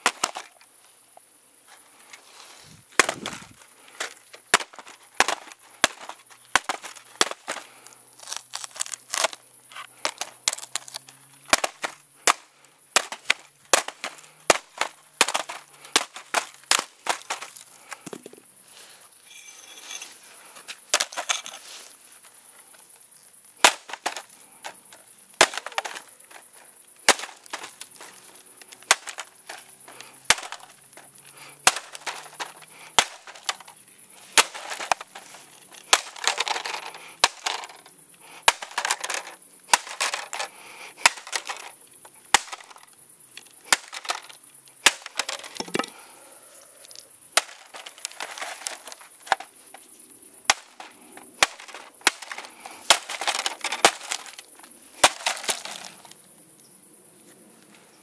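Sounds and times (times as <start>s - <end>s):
plastic crunching and splintering: 0.0s - 0.5s, 2.9s - 18.3s, 23.6s - 24.8s, 25.4s - 30.8s, 31.6s - 33.7s, 34.3s - 37.9s, 38.5s - 41.7s, 42.3s - 42.8s, 43.6s - 45.9s, 47.4s - 49.5s, 50.5s - 56.1s.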